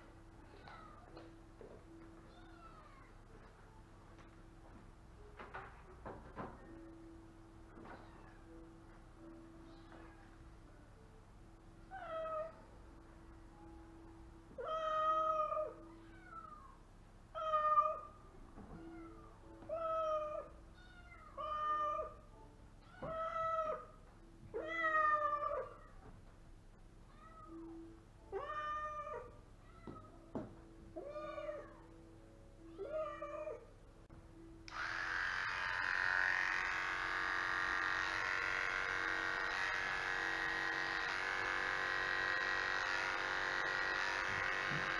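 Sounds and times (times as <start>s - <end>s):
electric hair clipper running: 34.7s - 44.9s.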